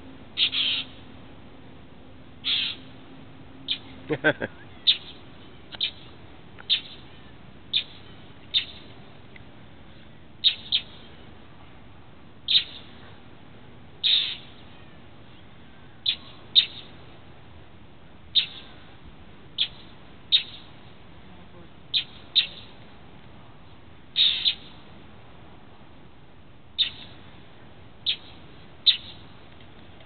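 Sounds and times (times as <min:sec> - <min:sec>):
birds giving sharp scolding calls: 0:00.4 - 0:01.0, 0:02.4 - 0:03.0, 0:03.6 - 0:08.9, 0:10.4 - 0:11.1, 0:12.4 - 0:13.0, 0:14.0 - 0:14.8, 0:16.0 - 0:17.0, 0:18.3 - 0:18.8, 0:19.6 - 0:21.0, 0:21.9 - 0:22.8, 0:24.1 - 0:24.8, 0:26.8 - 0:27.2, 0:28.0 - 0:29.3.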